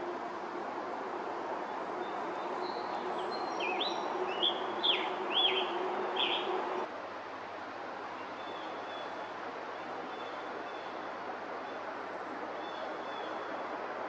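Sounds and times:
steady background noise: 0.0s - 14.0s
bird singing slurred phrases: 3.4s - 6.5s.

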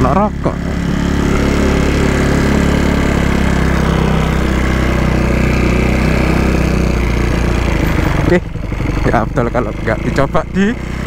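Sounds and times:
motorcycle engine cruising: 0.0s - 11.0s.

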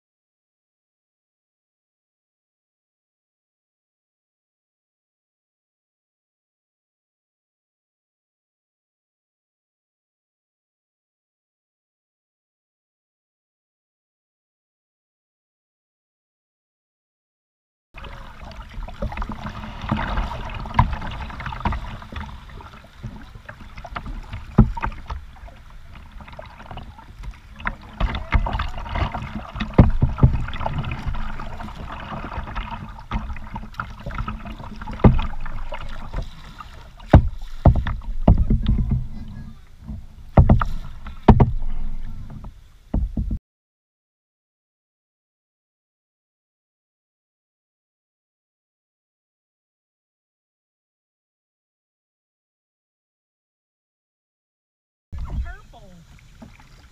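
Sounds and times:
paddle splashing in water: 18.0s - 43.4s, 55.2s - 56.9s
water washing along hull: 18.0s - 43.4s, 55.2s - 56.9s
sharp knocks: 37.1s - 39.1s, 40.3s - 41.7s.

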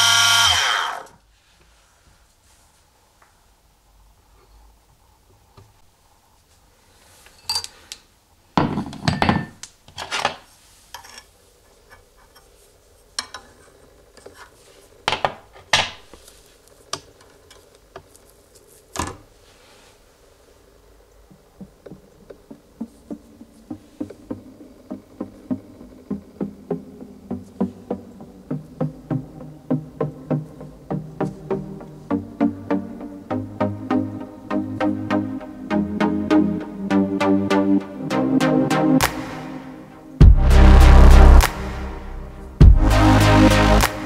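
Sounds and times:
background music with beat: 21.6s - 44.0s.

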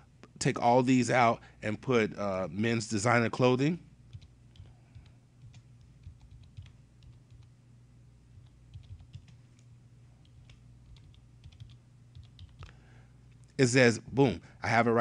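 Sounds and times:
keyboard typing: 4.1s - 7.5s, 8.3s - 13.4s.

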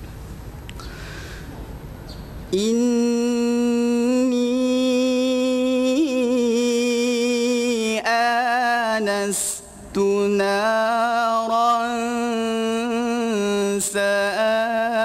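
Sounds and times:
man taking a breath: 0.8s - 1.6s
man chanting melodically: 2.5s - 15.0s.

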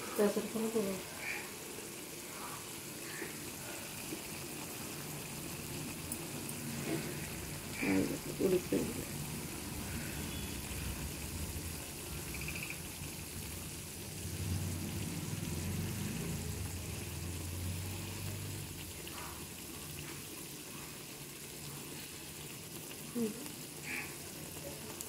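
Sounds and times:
curry simmering and bubbling: 0.0s - 25.0s.

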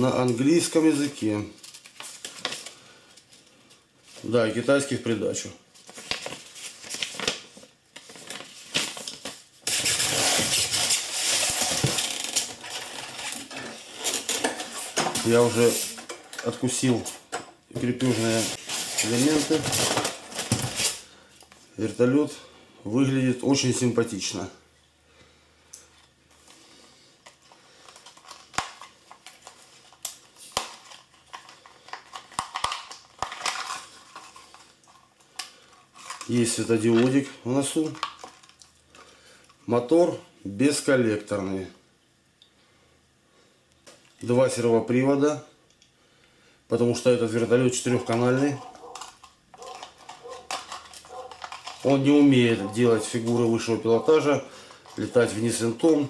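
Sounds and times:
paper booklet rustling: 5.7s - 17.0s, 17.8s - 21.0s, 47.3s - 56.0s
polystyrene foam rubbing: 9.6s - 16.0s, 18.0s - 21.1s.

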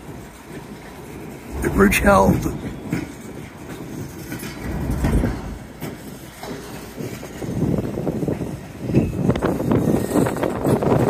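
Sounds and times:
wind buffeting microphone: 0.5s - 11.0s
freight train rumbling past: 0.8s - 8.8s.

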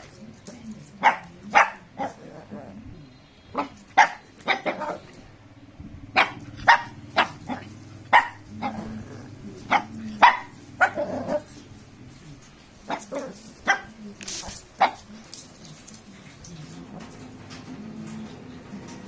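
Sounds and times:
small dog barking: 1.0s - 2.5s, 3.5s - 5.2s, 6.1s - 9.0s, 9.6s - 11.5s, 12.8s - 14.0s, 14.8s - 15.1s.

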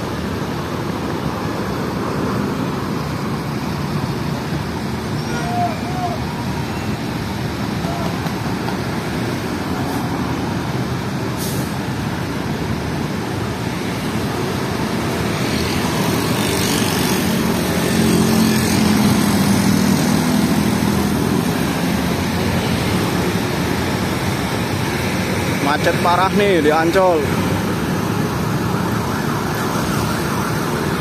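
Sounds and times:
bus engines running: 0.0s - 31.0s
motorcycles passing: 13.1s - 31.0s.

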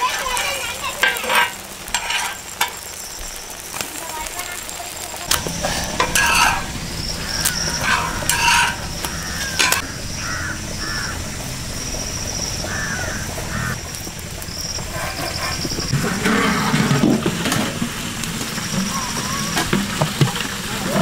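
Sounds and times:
metal spatula scraping griddle: 0.0s - 2.9s, 5.3s - 9.8s, 14.8s - 17.7s
food frying: 0.0s - 21.0s
crows cawing: 7.1s - 11.3s, 12.6s - 13.8s.

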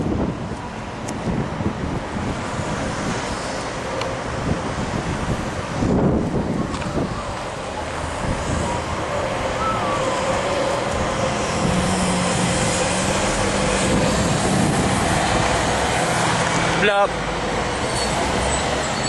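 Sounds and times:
highway traffic rushing: 0.0s - 19.0s
vehicle engine hum: 0.0s - 19.0s.

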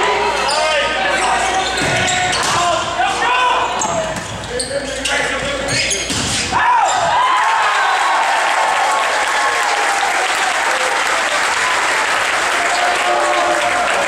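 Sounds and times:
shouts: 6.5s - 14.0s
spectators clapping and cheering: 7.1s - 14.0s.

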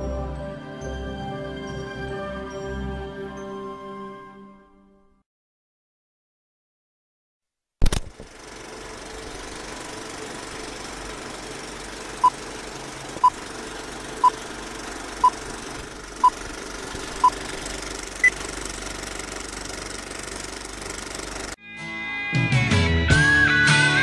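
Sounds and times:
film projector rattle: 7.8s - 21.6s.

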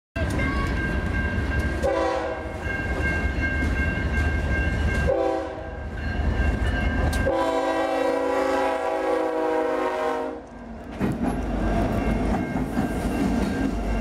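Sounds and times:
diesel locomotives rumbling past: 0.2s - 14.0s
train horn blasts: 1.8s - 2.6s, 5.1s - 5.8s, 7.2s - 10.5s.

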